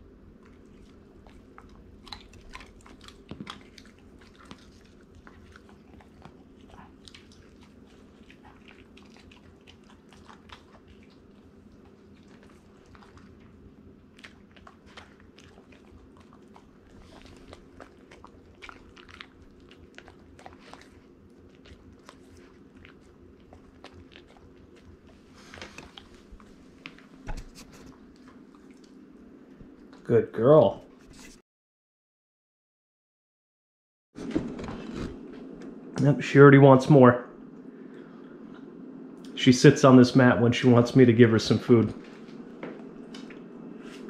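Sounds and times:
low steady hum: 0.0 - 31.4, 34.2 - 44.0
dog chewing crunchy treat: 0.4 - 29.1.

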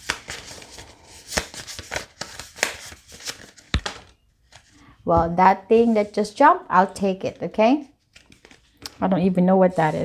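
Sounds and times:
cards rustling while shuffled: 0.0 - 4.8, 8.0 - 9.0.

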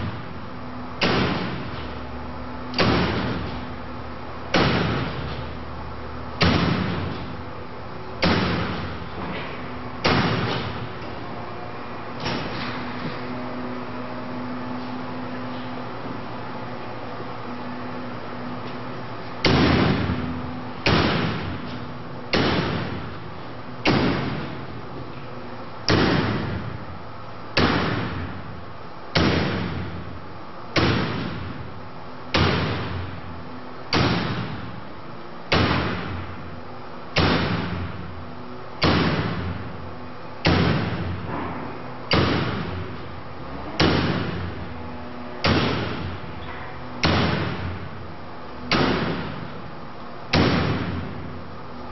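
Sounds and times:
axe striking metal wire mesh: 1.0 - 2.0, 2.7 - 3.7, 4.5 - 5.5, 6.4 - 7.3, 8.2 - 10.9, 19.4 - 20.2, 20.8 - 23.1, 27.6 - 28.2, 37.2 - 37.9, 40.4 - 42.8, 43.8 - 44.5, 45.4 - 46.2, 47.0 - 47.8, 48.7 - 49.5.

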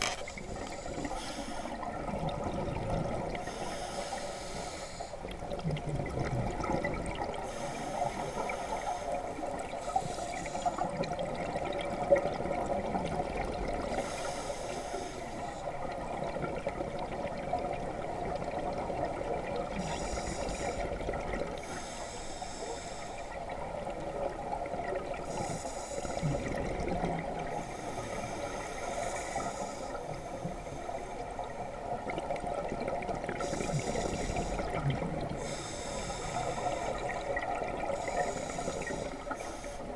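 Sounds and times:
diver breathing through a regulator: 0.0 - 2.2, 3.2 - 5.4, 7.4 - 11.2, 13.8 - 16.0, 19.7 - 23.6, 25.2 - 31.8, 33.2 - 39.9.

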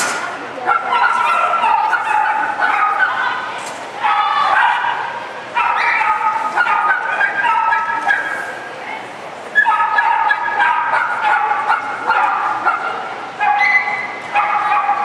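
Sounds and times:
small dog yipping: 0.7 - 3.3, 5.6 - 8.5, 9.6 - 15.0.

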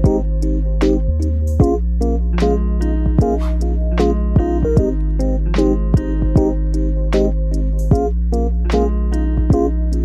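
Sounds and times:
background music with drum beat: 3.1 - 5.0, 6.0 - 6.6, 7.9 - 8.1, 9.5 - 9.7.

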